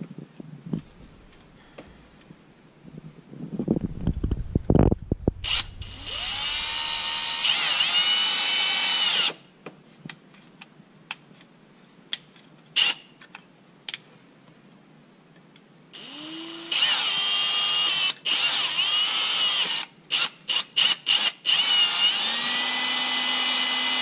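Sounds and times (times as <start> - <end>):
power drill running: 5.3 - 9.4, 16.0 - 19.8, 21.1 - 24.0.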